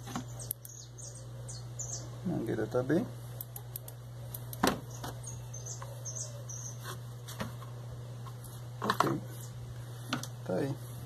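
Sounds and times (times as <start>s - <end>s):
steady low hum: 0.0s - 11.0s
faint bird chirps: 0.2s - 2.4s, 4.2s - 6.9s.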